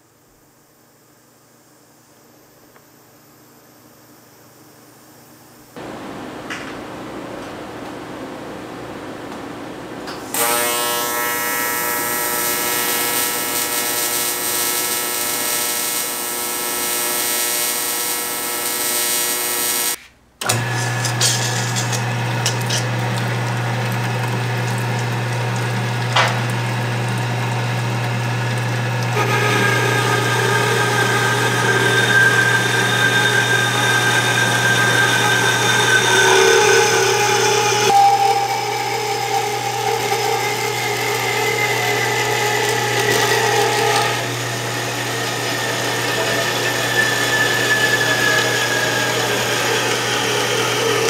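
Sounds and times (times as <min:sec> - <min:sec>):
welding arc buzzing: 0:10.1 - 0:51.0
band saw cutting metal: 0:10.2 - 0:51.0.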